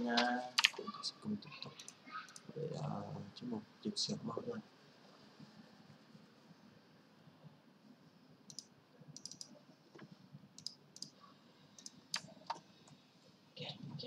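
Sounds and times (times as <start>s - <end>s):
computer mouse clicks: 0.2s - 0.8s, 1.7s - 2.5s, 8.5s - 13.0s.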